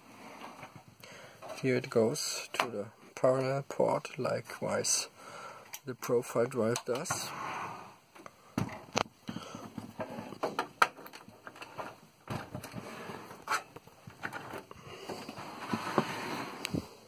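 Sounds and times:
handling clicks taps and knocks: 0:06.6 - 0:07.1.

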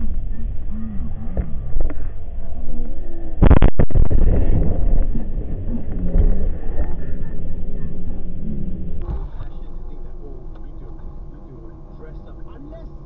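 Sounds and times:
loud rumble: 0:00.0 - 0:13.0
car road noise: 0:03.6 - 0:13.0.

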